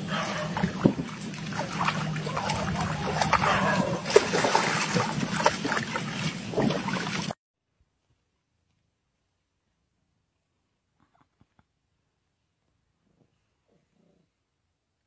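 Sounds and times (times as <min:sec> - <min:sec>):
low steady hum: 0:00.0 - 0:07.3
dog splashing in water: 0:00.0 - 0:07.4.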